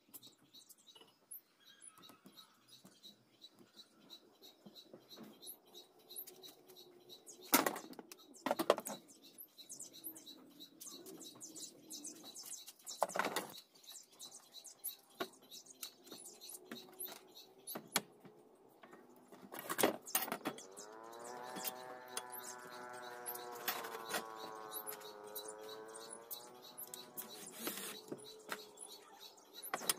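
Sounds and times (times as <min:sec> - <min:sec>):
faint high chirping: 0:20.0 - 0:29.9.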